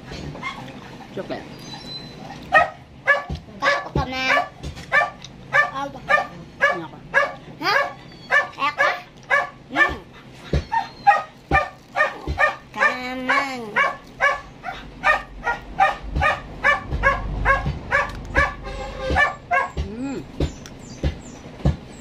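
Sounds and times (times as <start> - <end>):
dog whining: 0.4 - 3.3, 6.2 - 22.0
dog yapping barks: 2.5 - 19.8.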